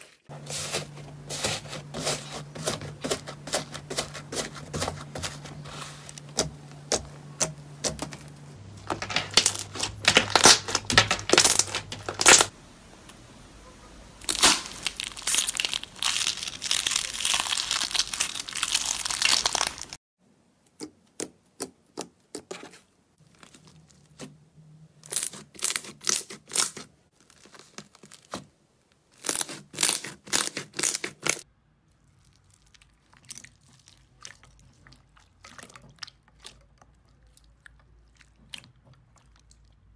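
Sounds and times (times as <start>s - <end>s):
slime crackling and tearing: 8.9s - 12.5s, 14.2s - 20.0s, 25.0s - 34.7s.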